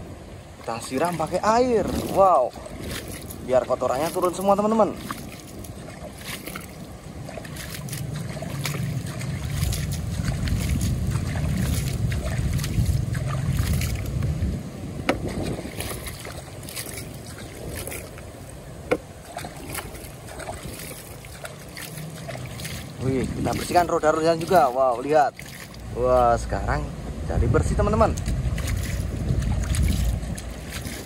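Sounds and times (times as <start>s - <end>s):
water splashing in plastic toy: 0.7s - 14.4s, 15.0s - 26.4s, 28.1s - 31.0s
low rumble: 6.8s - 21.4s.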